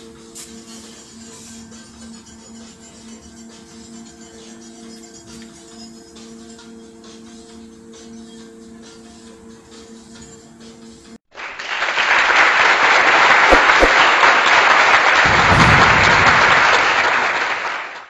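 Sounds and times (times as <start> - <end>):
loud applause: 11.3 - 18.0.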